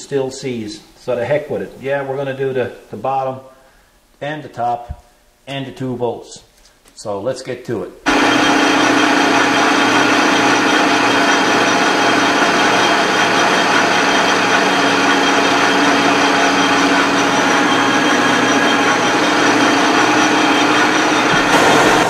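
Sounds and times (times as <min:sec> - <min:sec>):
metal lathe cutting: 0:08.1 - 0:22.0.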